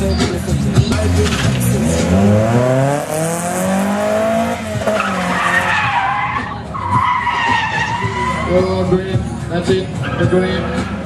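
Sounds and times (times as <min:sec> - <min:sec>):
car engine revving: 0:00.0 - 0:11.0
tyres squealing: 0:04.6 - 0:08.9.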